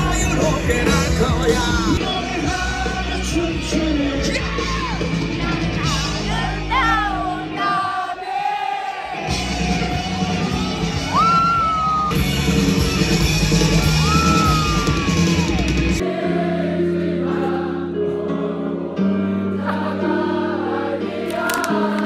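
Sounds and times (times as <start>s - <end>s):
crowd singing along: 0.0s - 10.1s, 16.0s - 22.0s
loud live concert music: 0.0s - 18.5s.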